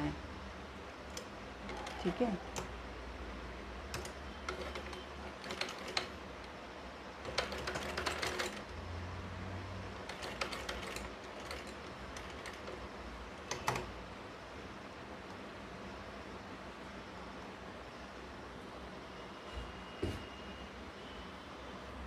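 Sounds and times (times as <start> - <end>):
sewing machine clicking: 3.9 - 6.6, 7.2 - 8.7, 10.0 - 13.9.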